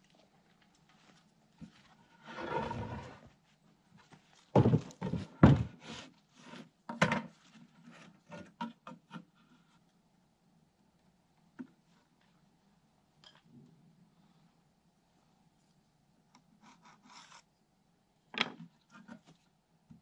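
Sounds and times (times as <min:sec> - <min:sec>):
wooden knocks and thuds: 0:04.5 - 0:05.8.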